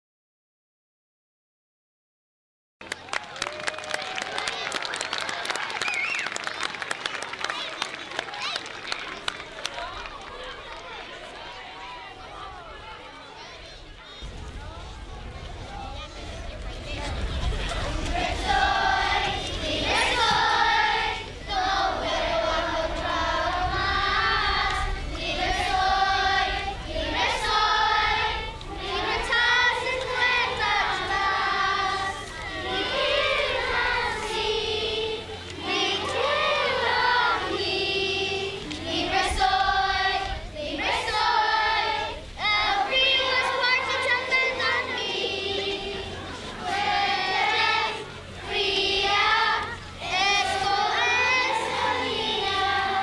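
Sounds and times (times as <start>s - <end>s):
children's choir singing: 15.7s - 53.0s.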